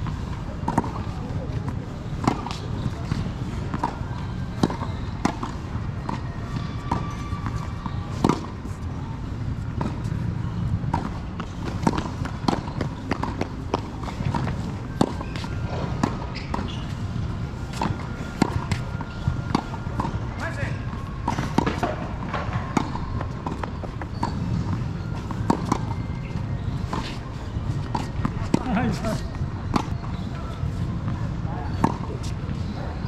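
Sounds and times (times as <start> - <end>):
tennis ball bouncing: 0.0 - 8.8, 9.6 - 20.2, 20.8 - 30.2, 31.0 - 32.7.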